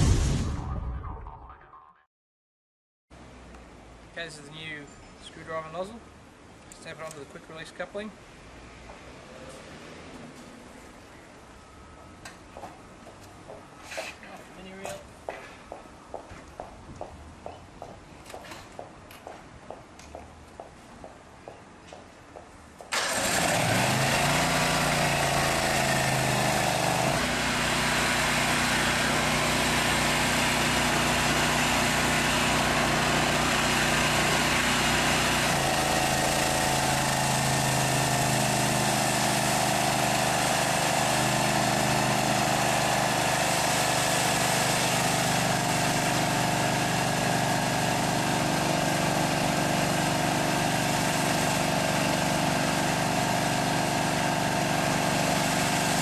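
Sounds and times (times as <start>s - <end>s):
petrol engine running: 22.9s - 27.2s.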